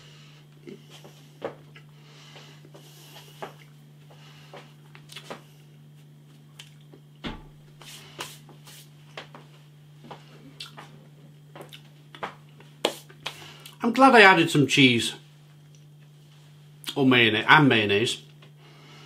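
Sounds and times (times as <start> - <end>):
steady low hum: 0.0 - 19.0
chewing mouth clicks and smacks: 5.0 - 5.4, 6.6 - 7.0, 10.6 - 10.9, 11.6 - 12.2.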